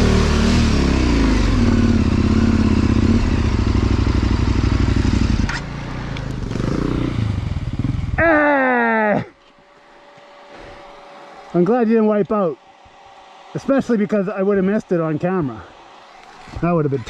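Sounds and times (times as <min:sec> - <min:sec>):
motorcycle engine revving: 0:00.0 - 0:09.1.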